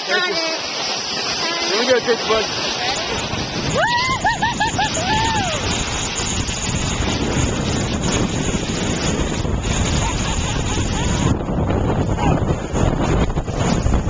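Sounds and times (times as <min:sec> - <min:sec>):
snow tube sliding on snow: 0:00.0 - 0:14.0
wind on microphone: 0:00.1 - 0:14.0.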